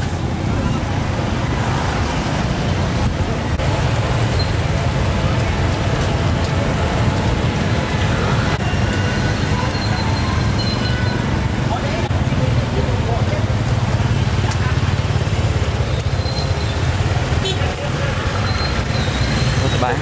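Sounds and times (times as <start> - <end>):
street traffic rumble: 0.0 - 20.0.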